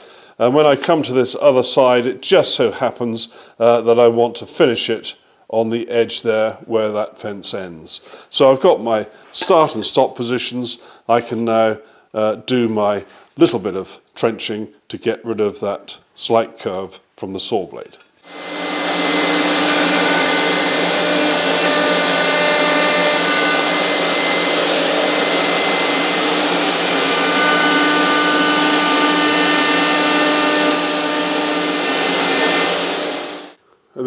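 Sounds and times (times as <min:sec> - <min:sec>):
dust extractor running: 0:18.3 - 0:33.6
router whining: 0:18.3 - 0:33.6.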